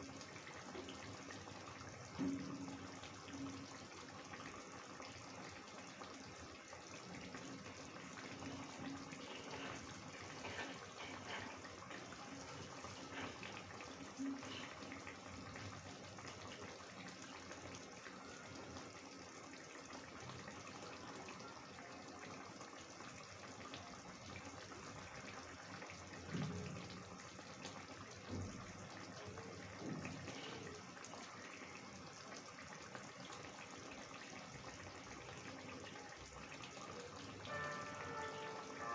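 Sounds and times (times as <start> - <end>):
gravy simmering with bubbling hiss: 0.0 - 38.9.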